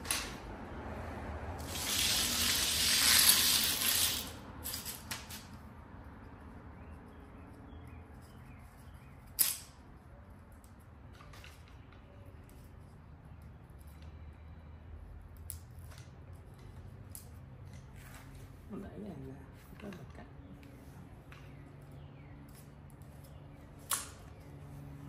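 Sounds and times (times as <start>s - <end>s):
screen mesh rustling on concrete: 1.6s - 5.6s.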